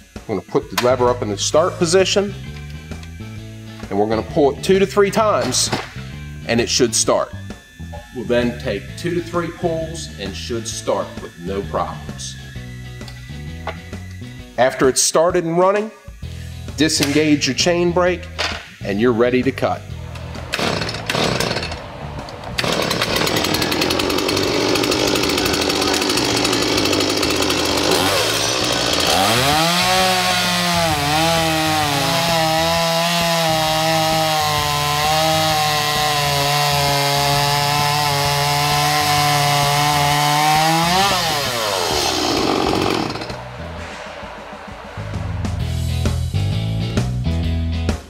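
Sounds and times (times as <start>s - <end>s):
chainsaw cutting a log: 20.3s - 21.8s, 22.5s - 43.5s.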